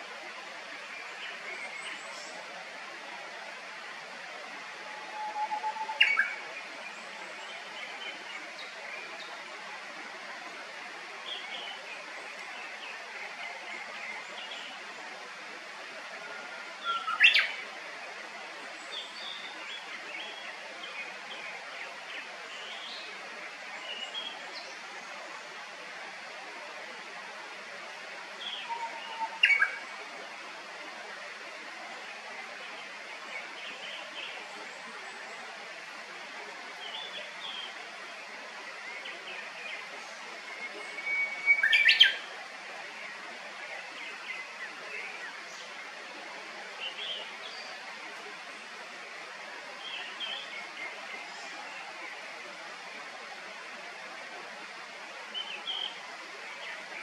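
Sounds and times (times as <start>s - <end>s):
bird whistled song: 5.2s - 6.4s, 28.5s - 29.8s, 40.8s - 42.2s.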